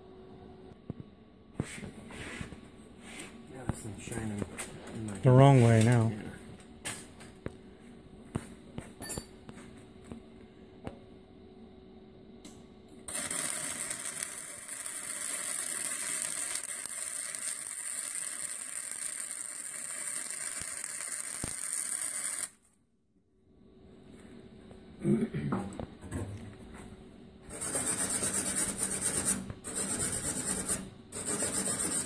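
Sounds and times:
welder arc crackling and hissing: 0:13.1 - 0:22.6.

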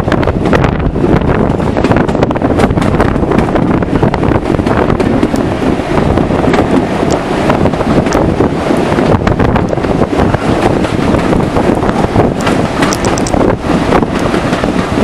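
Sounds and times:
train wheels rumbling on track: 0:00.0 - 0:15.0
wind buffeting microphone: 0:00.0 - 0:15.0
clicks and clatter: 0:12.4 - 0:13.4.

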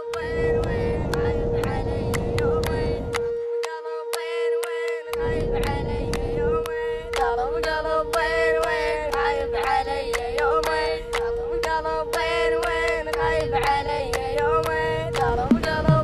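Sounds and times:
steady drone: 0:00.0 - 0:16.0
regular drum beat: 0:15.5 - 0:16.0
sung melody bending in pitch: 0:15.5 - 0:16.0.

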